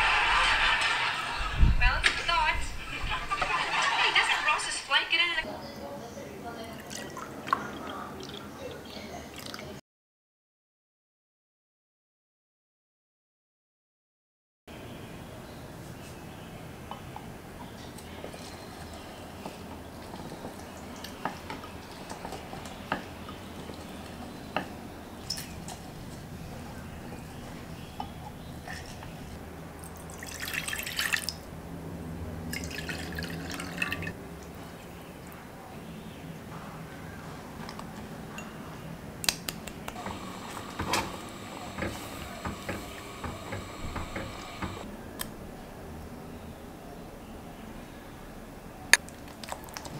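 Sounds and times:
wet squishing of fruit: 0:49.0 - 0:49.9.

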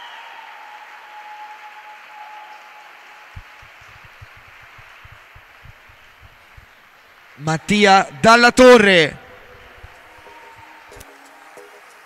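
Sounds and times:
audience applauding: 0:00.0 - 0:12.0
soft low knocks: 0:03.4 - 0:06.9.

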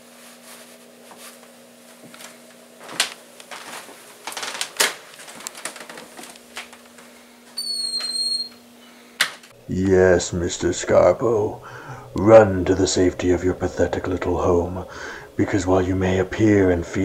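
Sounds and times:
footsteps: 0:00.0 - 0:07.6
steady low hum: 0:00.0 - 0:07.8, 0:08.5 - 0:17.0
high-pitched squeak: 0:07.6 - 0:08.6.

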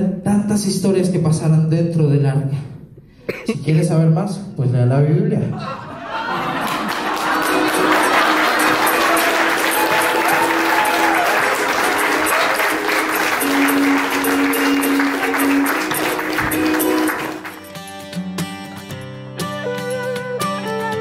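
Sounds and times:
audience applauding: 0:06.2 - 0:18.0
music with long held notes: 0:07.2 - 0:21.0
plucked guitar music: 0:07.3 - 0:21.0.

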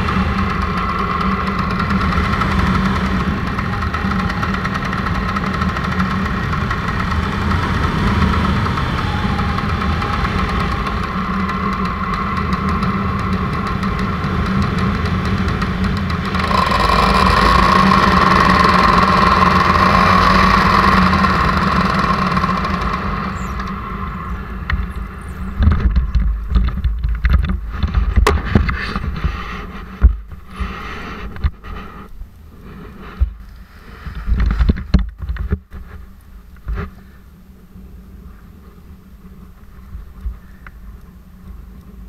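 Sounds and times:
paramotor engine running: 0:00.0 - 0:31.9
wind buffeting microphone: 0:00.0 - 0:31.9.

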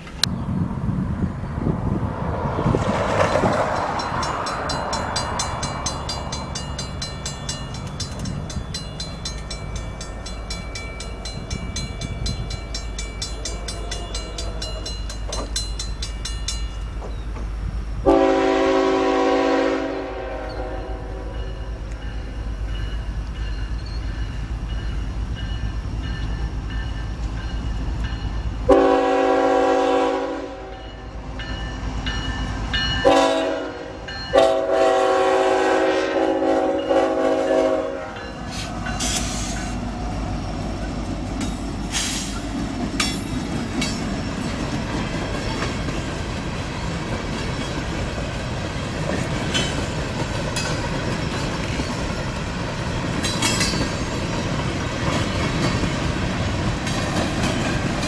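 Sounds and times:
train rumbling past: 0:00.0 - 0:58.0
train wheels clicking and clattering: 0:02.7 - 0:17.6, 0:36.6 - 0:58.0
train horn blasts: 0:18.0 - 0:21.6, 0:28.7 - 0:31.1, 0:33.0 - 0:38.7.

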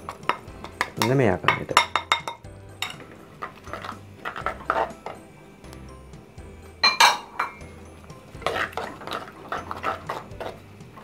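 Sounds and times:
spoon scraping a clay pot: 0:02.1 - 0:05.2, 0:08.3 - 0:10.7.

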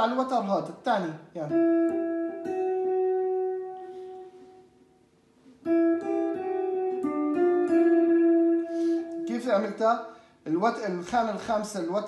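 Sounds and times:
electric guitar single notes: 0:01.4 - 0:10.3.

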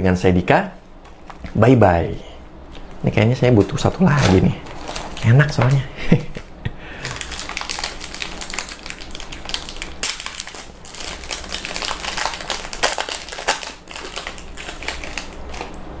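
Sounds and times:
plastic wrapper crinkling: 0:03.6 - 0:05.8, 0:07.0 - 0:16.0.

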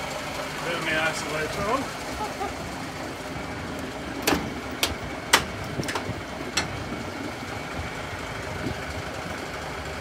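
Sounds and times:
truck door clicks and knocks: 0:04.2 - 0:06.8.

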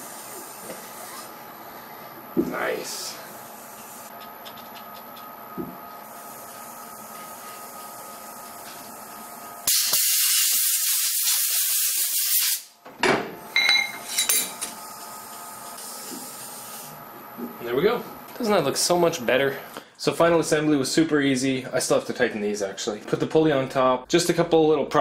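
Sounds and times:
pressurised spray hissing: 0:09.7 - 0:12.7.

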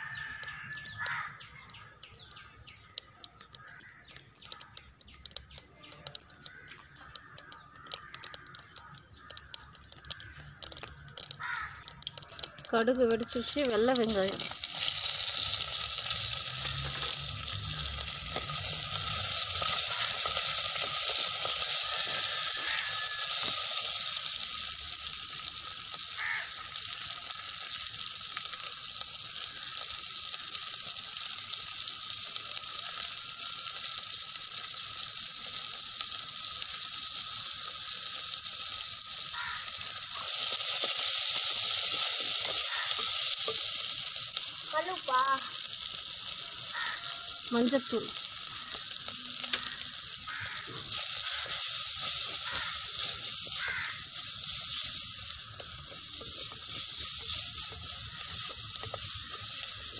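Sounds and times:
onions sizzling in hot oil: 0:00.0 - 0:59.9
wooden spatula stirring: 0:09.2 - 0:23.9, 0:39.9 - 0:44.6, 0:49.5 - 0:59.9.

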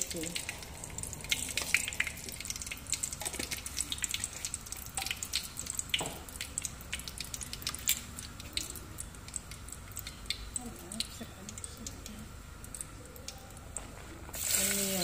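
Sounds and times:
spices sizzling in hot oil: 0:14.2 - 0:15.0.

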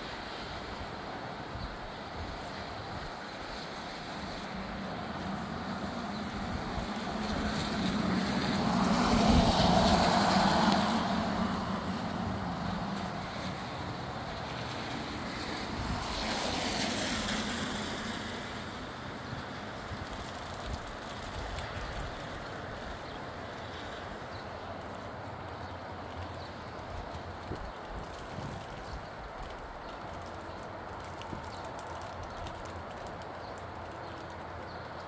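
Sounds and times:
wind through palm fronds: 0:00.0 - 0:35.0
wind buffeting microphone: 0:04.4 - 0:13.8, 0:26.8 - 0:33.0.

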